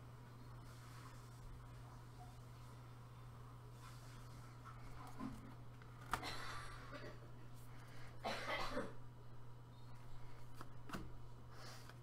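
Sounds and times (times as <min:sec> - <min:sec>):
steady low hum: 0:00.0 - 0:12.0
person coughing: 0:06.1 - 0:07.3, 0:08.2 - 0:09.0.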